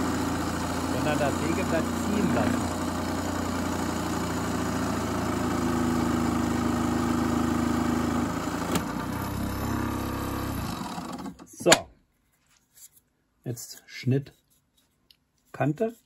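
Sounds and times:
scroll saw cutting wood: 0:00.9 - 0:03.9.

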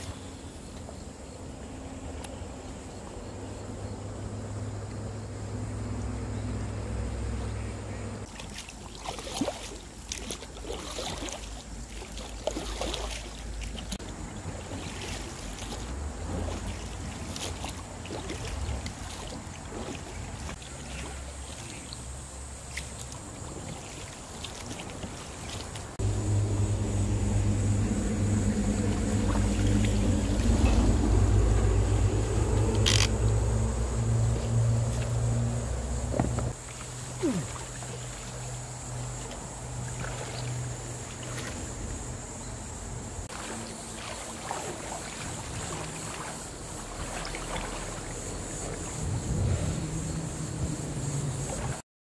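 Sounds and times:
paddle splashing water: 0:00.0 - 0:03.2, 0:07.3 - 0:51.8
electric outboard motor humming: 0:26.0 - 0:51.5.

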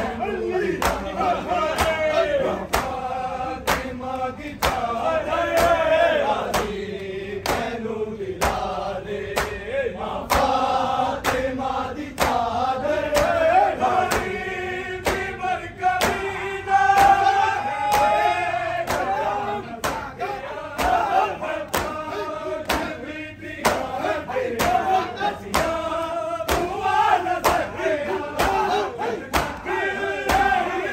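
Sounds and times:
men chanting in unison: 0:00.0 - 0:30.9
chest-beating slaps: 0:00.8 - 0:05.8, 0:06.4 - 0:06.8, 0:07.4 - 0:07.7, 0:08.4 - 0:08.7, 0:09.3 - 0:09.6, 0:10.2 - 0:10.6, 0:12.1 - 0:12.5, 0:13.1 - 0:14.4, 0:15.0 - 0:15.4, 0:16.0 - 0:16.3, 0:17.9 - 0:18.3, 0:18.9 - 0:19.2, 0:19.8 - 0:23.0, 0:23.6 - 0:25.8, 0:26.5 - 0:26.8, 0:27.4 - 0:29.7.

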